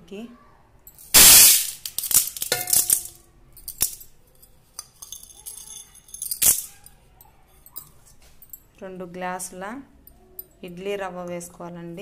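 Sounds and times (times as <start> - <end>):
steel clinking and ringing: 1.9 - 6.9.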